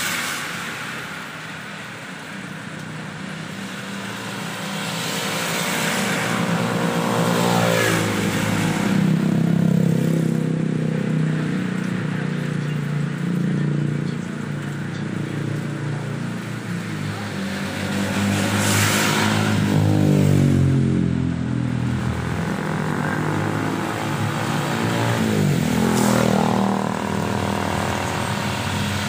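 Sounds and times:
car swishing on wet tyres: 0.0 - 9.4, 16.4 - 20.0
heavy rain on wet street: 0.0 - 29.0
vehicle passing: 3.3 - 29.0.

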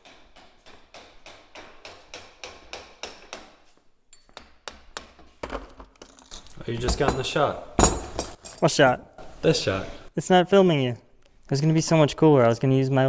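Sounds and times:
hammer tapping on metal: 0.0 - 3.6.

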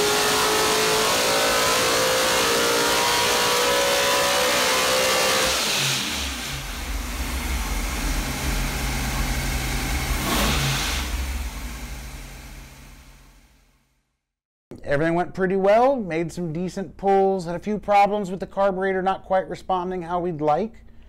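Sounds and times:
race engine revving: 0.0 - 13.3.

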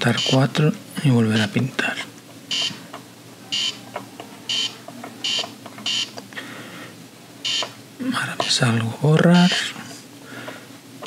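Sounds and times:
short electronic beeps: 7.4 - 7.7.

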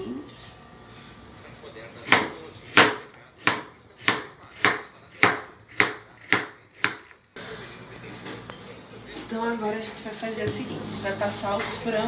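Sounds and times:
knife chopping on plastic board: 2.0 - 7.2.

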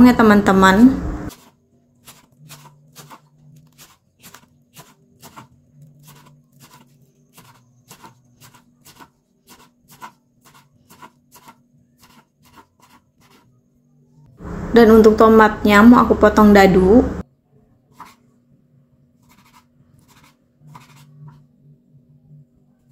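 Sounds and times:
knife chopping on wooden board: 1.3 - 13.4.

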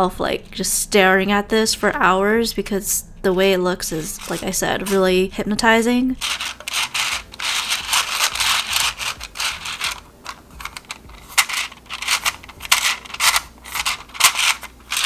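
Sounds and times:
fidget toy rings rustling and clicking: 4.0 - 5.1, 6.2 - 15.0.

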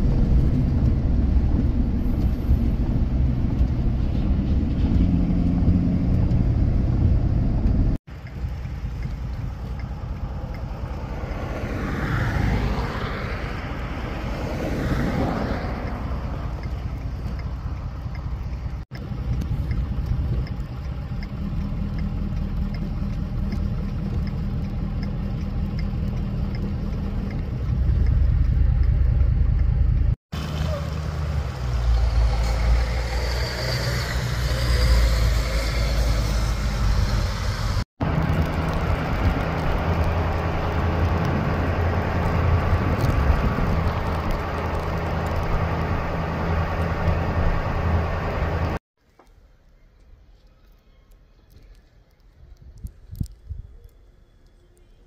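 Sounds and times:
truck engines rumbling: 0.0 - 49.3
road noise: 0.0 - 55.0
low engine drone: 15.6 - 48.8.

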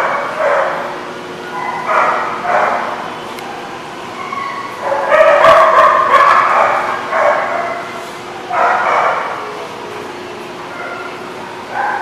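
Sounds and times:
dog barking and yipping: 1.6 - 2.8, 4.2 - 7.9, 8.5 - 9.4.

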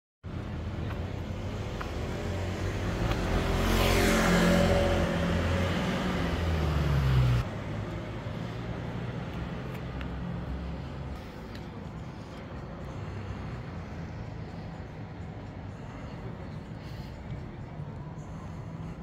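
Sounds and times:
vehicle passing close by: 1.8 - 8.0.

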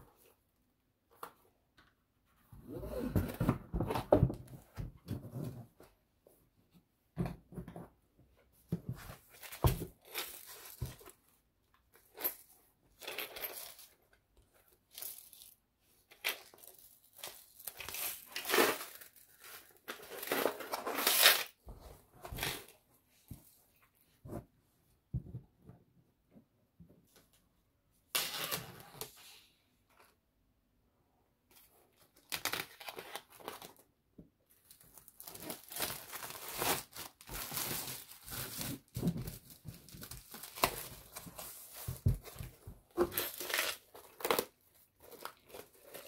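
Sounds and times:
plastic film crinkling: 34.6 - 42.1.

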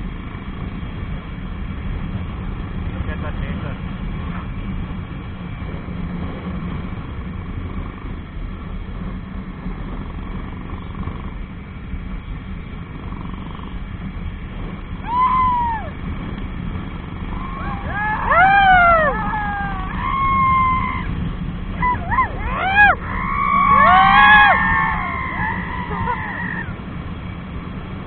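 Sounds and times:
motorcycle engine and road rumble: 0.0 - 28.0
loud wailing calls: 17.3 - 26.8.

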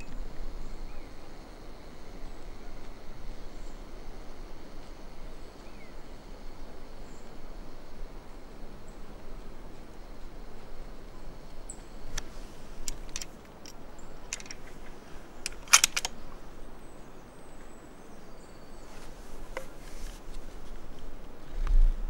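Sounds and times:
sharp clicks and ticks: 12.1 - 14.8, 15.4 - 16.2.

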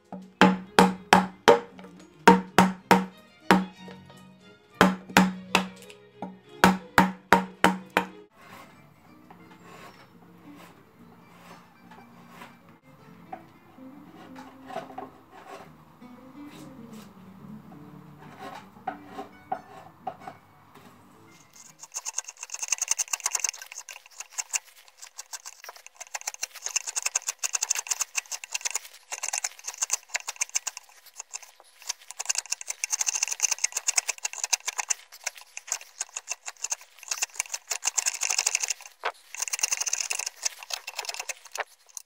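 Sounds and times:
gouge cutting wood crackle: 0.0 - 4.0, 4.8 - 5.9, 6.6 - 8.2, 21.5 - 42.0.

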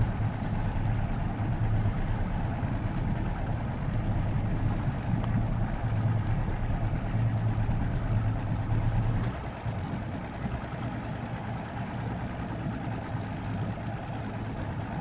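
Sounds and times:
motorboat engine running: 0.0 - 15.0.

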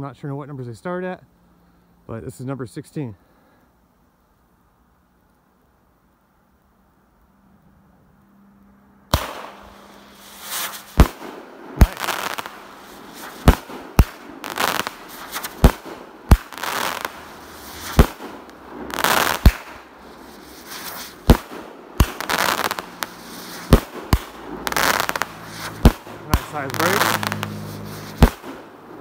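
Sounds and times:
firework crackling: 8.8 - 29.0
firework bangs: 9.1 - 29.0.

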